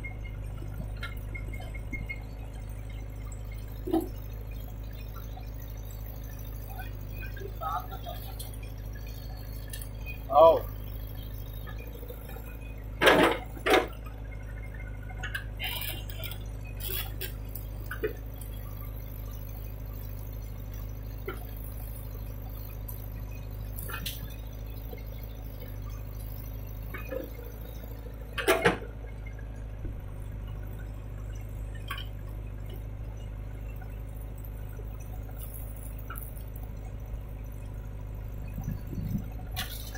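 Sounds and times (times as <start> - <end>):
diesel engine running: 0.0 - 39.9
metal clanks and knocks: 13.0 - 14.0.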